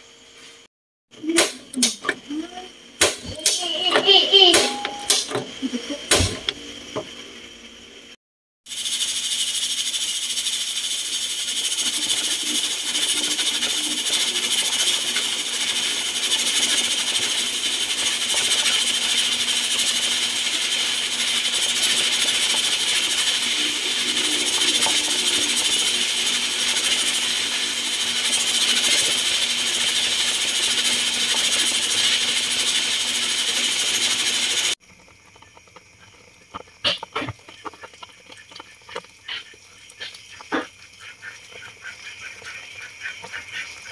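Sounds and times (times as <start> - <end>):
pressure cooker hissing: 1.2 - 36.0
pot boiling and bubbling: 5.6 - 43.9.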